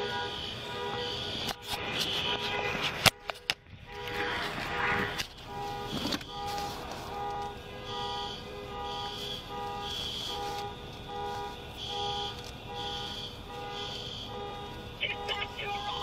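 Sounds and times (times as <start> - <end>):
electronic alarm steady low tone: 7.8 - 16.0
high alarm beeps: 15.0 - 16.0.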